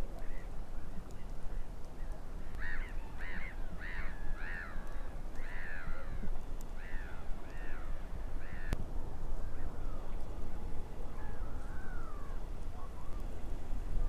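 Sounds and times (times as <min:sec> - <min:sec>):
low wind rumble: 0:00.0 - 0:14.0
crows cawing: 0:02.5 - 0:08.8.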